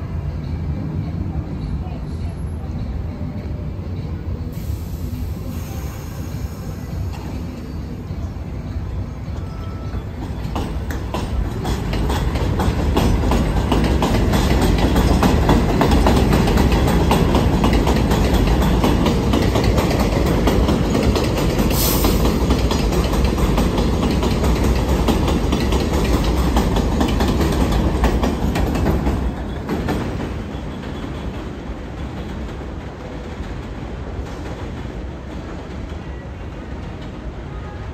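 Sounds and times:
train rumble: 0.0s - 37.9s
wheels clacking over rail joints: 10.0s - 32.7s.

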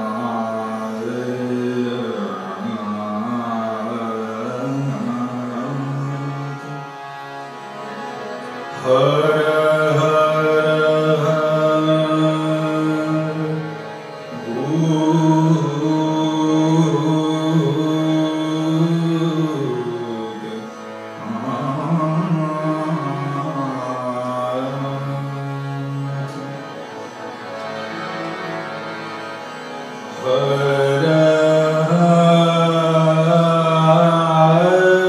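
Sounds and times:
harmonium: 0.0s - 35.0s
person singing long notes: 8.7s - 26.7s.

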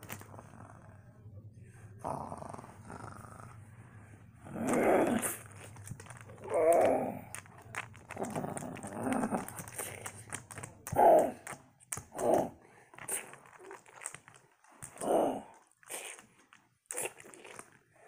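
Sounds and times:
child imitating growls and roars: 4.5s - 5.4s, 6.4s - 7.3s
plastic toys clicking: 4.6s - 17.8s.

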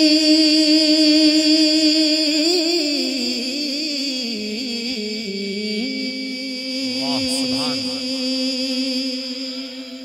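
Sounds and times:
man singing through sound system: 6.8s - 8.4s.

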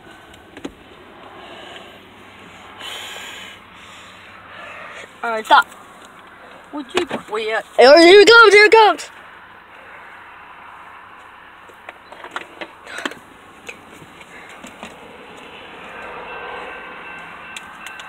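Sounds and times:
car cabin noise: 0.0s - 1.9s, 5.2s - 9.1s
faint steady tones: 14.2s - 18.0s.

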